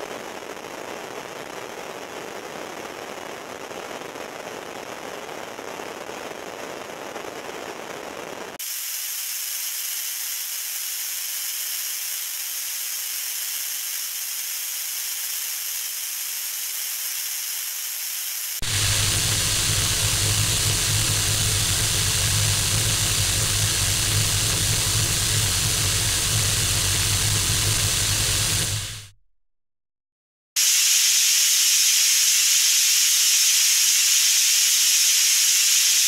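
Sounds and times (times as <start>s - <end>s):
crackling noise: 0.0s - 29.1s
white noise hiss: 0.0s - 29.1s, 30.6s - 36.0s
steady low hum: 18.6s - 29.1s.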